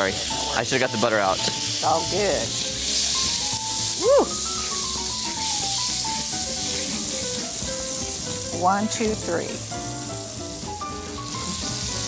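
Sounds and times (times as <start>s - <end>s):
juice sizzling in frying pan: 0.0s - 12.0s.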